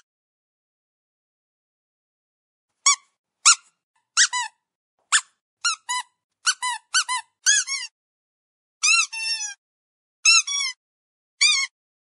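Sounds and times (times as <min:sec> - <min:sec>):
dog squeaky toy squeaks: 0:02.8 - 0:07.9, 0:08.8 - 0:09.6, 0:10.2 - 0:10.8, 0:11.4 - 0:11.8.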